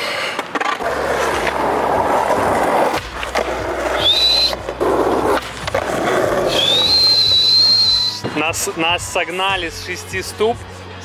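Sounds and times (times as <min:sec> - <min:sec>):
skateboard wheels rolling on asphalt: 0:00.0 - 0:08.1
high rising whistle: 0:04.0 - 0:04.6, 0:06.5 - 0:08.3.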